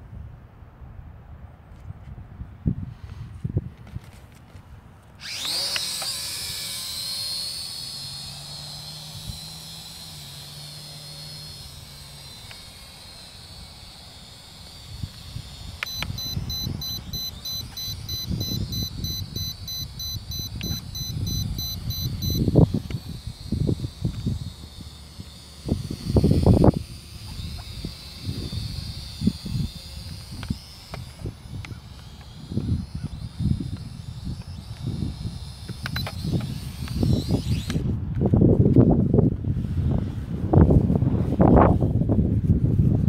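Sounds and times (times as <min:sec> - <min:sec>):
drone motors whining: 0:05.1 - 0:38.5
rapid high electronic beeping: 0:15.8 - 0:24.4.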